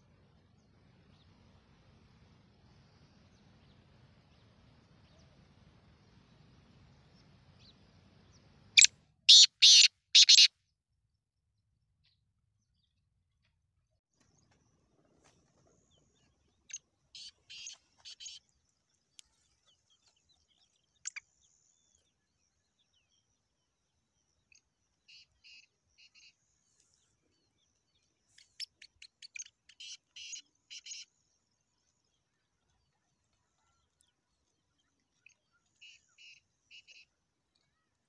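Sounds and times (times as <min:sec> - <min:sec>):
francolins calling: 0:09.3 - 0:10.5.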